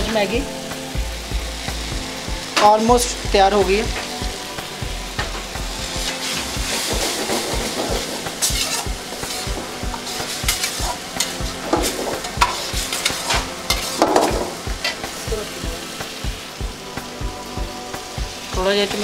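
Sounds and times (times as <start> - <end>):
frying broth sizzling: 0.0 - 19.0
ladle scraping a wok: 6.0 - 15.1.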